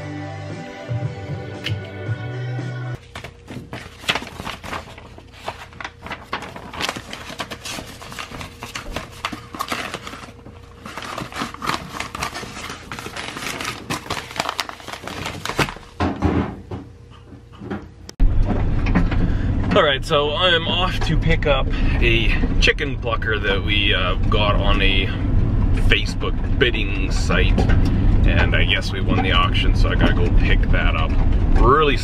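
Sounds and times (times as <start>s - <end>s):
paper rustling and crinkling: 3.0s - 16.0s.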